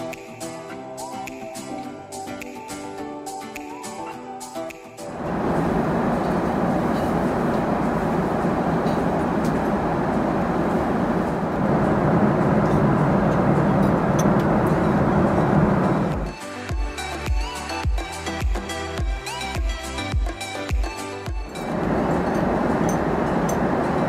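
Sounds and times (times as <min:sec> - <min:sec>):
airliner cabin noise: 0:05.1 - 0:16.3, 0:21.5 - 0:24.0.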